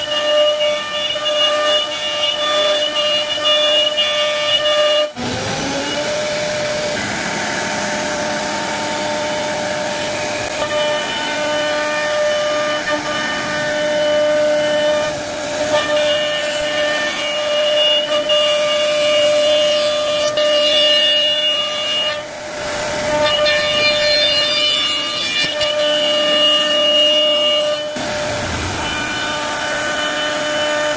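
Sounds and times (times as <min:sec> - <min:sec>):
router spindle whining: 0:00.0 - 0:30.9.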